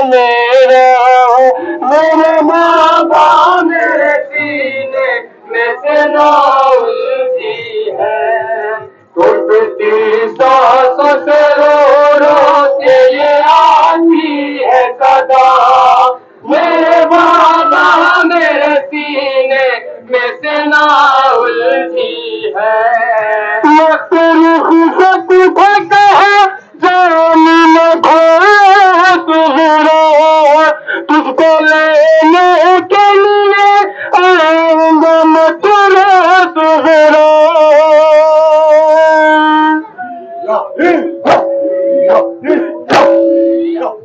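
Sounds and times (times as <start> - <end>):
men singing a mourning lament: 0.0 - 44.0.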